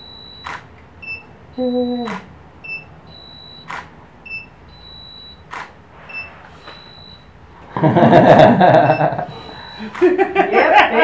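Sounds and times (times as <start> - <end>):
camera shutter click: 0.4 - 0.7, 3.7 - 3.9, 5.5 - 5.8
faint high steady tone: 1.5 - 2.2
voice and laughter: 7.8 - 11.0.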